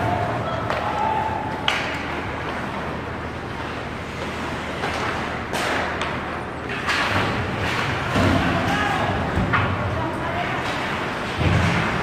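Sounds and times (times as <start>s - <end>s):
ice rink hall hiss: 0.0s - 12.0s
skates scraping on ice: 0.7s - 8.5s.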